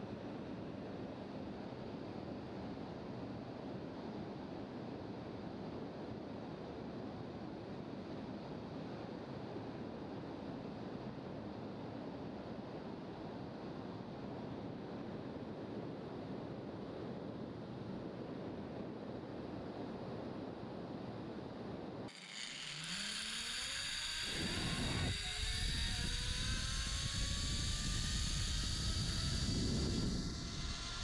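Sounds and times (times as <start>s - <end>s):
zipline pulleys whining: 22.1s - 31.0s
wind on microphone: 22.2s - 31.0s.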